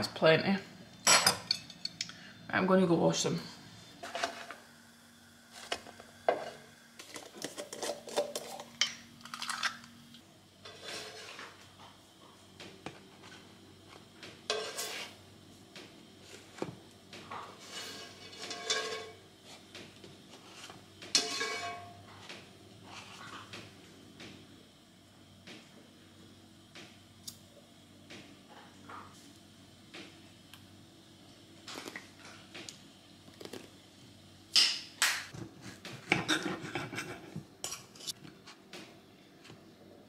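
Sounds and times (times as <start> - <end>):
kitchenware clinking on a plate: 1.0 - 2.0, 21.2 - 22.0.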